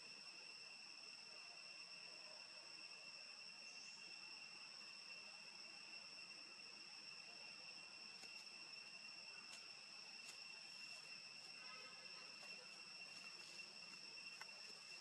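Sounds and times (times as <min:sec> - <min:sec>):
high-pitched insect chorus: 0:00.0 - 0:15.0
faint ticks: 0:08.1 - 0:08.5, 0:11.9 - 0:14.7.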